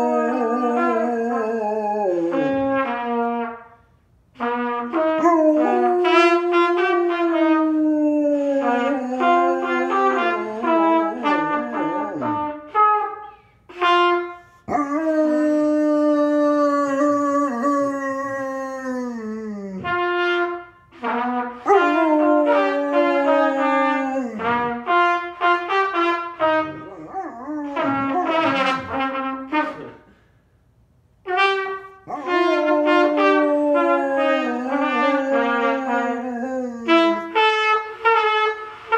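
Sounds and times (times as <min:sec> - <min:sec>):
dog howling: 0:00.0 - 0:03.0, 0:05.2 - 0:12.6, 0:14.7 - 0:20.0, 0:21.6 - 0:24.9, 0:26.7 - 0:29.1, 0:32.1 - 0:37.4
trumpet playing wavering notes: 0:00.0 - 0:03.8, 0:04.4 - 0:18.4, 0:19.8 - 0:30.1, 0:31.3 - 0:38.9.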